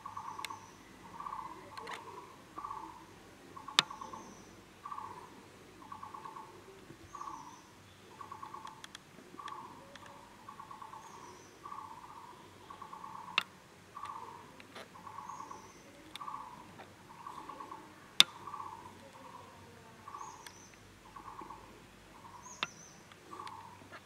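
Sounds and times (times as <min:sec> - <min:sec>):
bird calling in pulsed notes: 0:00.0 - 0:08.8
faint clicks: 0:00.4 - 0:00.7, 0:01.6 - 0:02.1, 0:03.6 - 0:04.2, 0:08.2 - 0:10.2, 0:12.8 - 0:21.5, 0:22.3 - 0:24.0.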